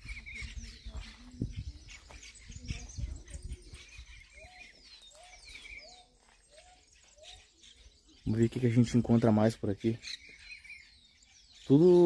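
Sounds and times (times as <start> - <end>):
birds whistling: 0.0 - 12.0.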